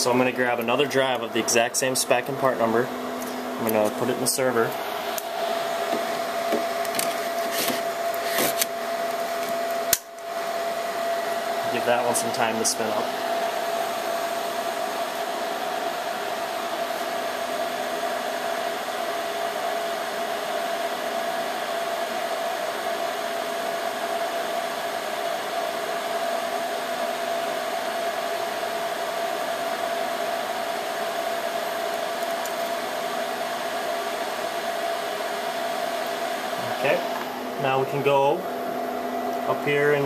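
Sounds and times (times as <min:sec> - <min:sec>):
mid-pitched hum: 0:00.0 - 0:18.9, 0:29.6 - 0:40.0
server cooling fans rushing: 0:00.0 - 0:40.0.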